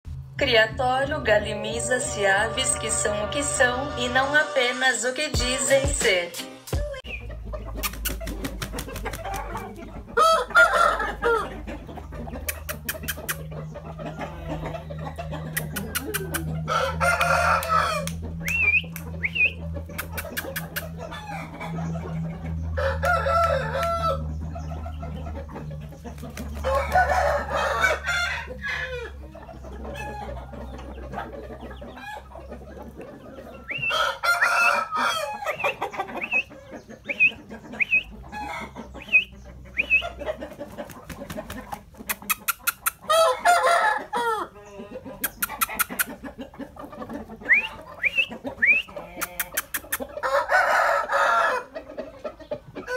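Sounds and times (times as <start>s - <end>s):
rooster crowing: 10.2s - 11.6s, 16.5s - 18.6s, 22.7s - 24.3s, 26.6s - 29.2s, 33.7s - 35.7s, 43.1s - 44.6s, 50.2s - 51.8s
high bird chirps: 38.9s - 40.2s.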